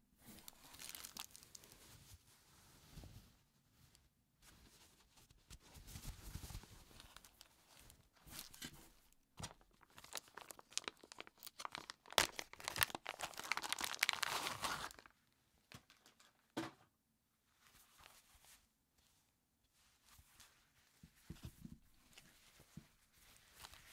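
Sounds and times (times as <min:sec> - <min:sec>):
fabric rustling: 0:00.2 - 0:09.2, 0:17.5 - 0:23.9
plastic bag crinkling and tearing: 0:00.3 - 0:01.7, 0:09.5 - 0:15.1.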